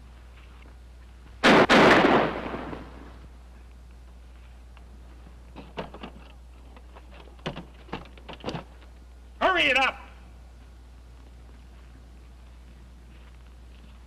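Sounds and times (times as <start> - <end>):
gunshots with echo: 1.4 - 3.0.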